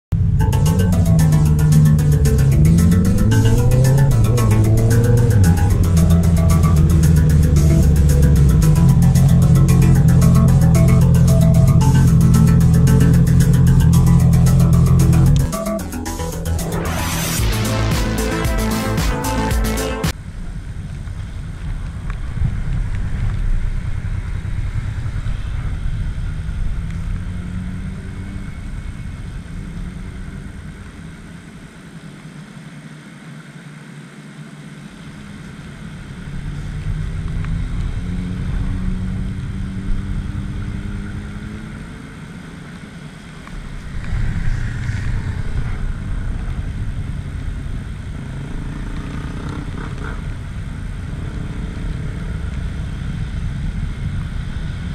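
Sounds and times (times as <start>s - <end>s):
motorcycles riding past: 0.2s - 15.6s, 36.2s - 54.9s.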